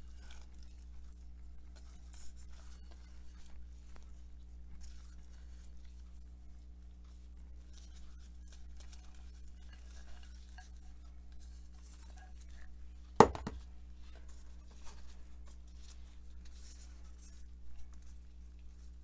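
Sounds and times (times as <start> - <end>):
steady low hum: 0.0 - 19.0
bowl clacking on countertop: 13.2 - 13.6.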